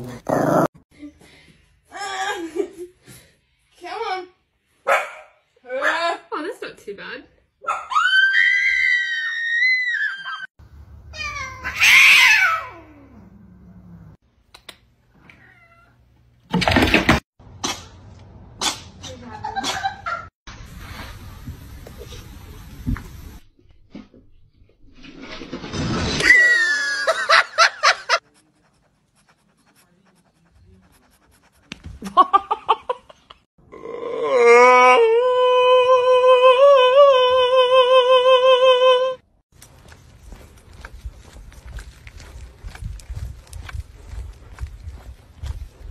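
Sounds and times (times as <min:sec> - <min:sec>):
cat yowling: 0:11.2 - 0:13.2
person laughing: 0:26.4 - 0:28.2, 0:32.0 - 0:33.4.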